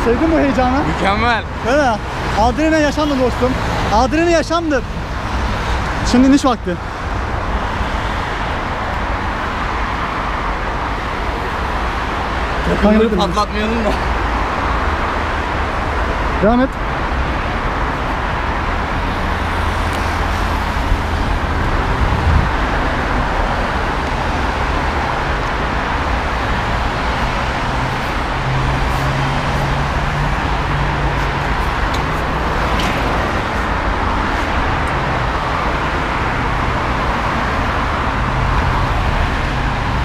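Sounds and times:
city road traffic: 0:00.0 - 0:40.0
passing vehicle engine hum: 0:17.1 - 0:40.0.

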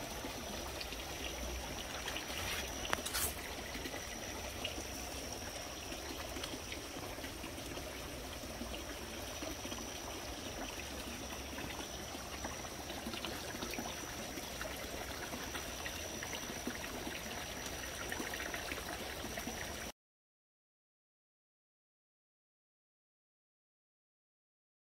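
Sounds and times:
fountain water splashing: 0:00.0 - 0:19.9.

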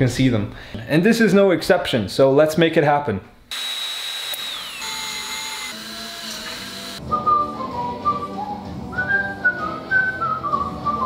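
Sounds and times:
cordless drill whirring: 0:03.5 - 0:07.0
music with whistled melody: 0:07.0 - 0:11.0.

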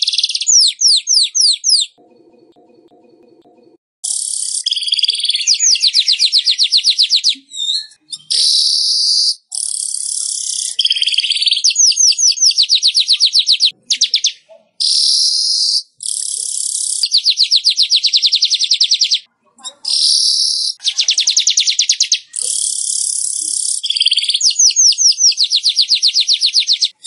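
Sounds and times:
bird singing wheezy chatter: 0:00.0 - 0:02.0, 0:04.0 - 0:27.0
bird rattling trills: 0:04.0 - 0:07.0.

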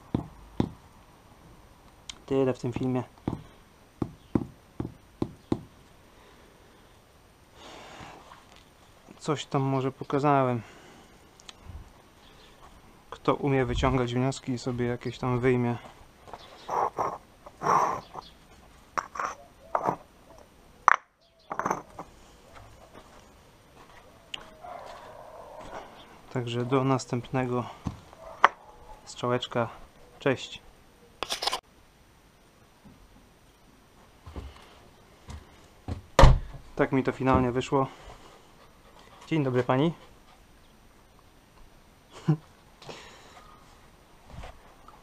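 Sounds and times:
rubber mallet knocking paving block: 0:00.1 - 0:00.8, 0:04.0 - 0:05.7.

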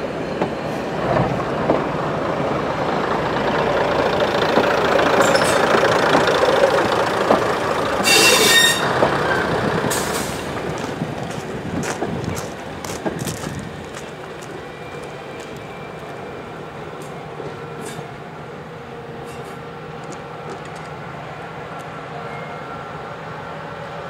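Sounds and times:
train diesel engines droning: 0:00.0 - 0:24.0
wheels clicking on rails: 0:03.9 - 0:15.6.

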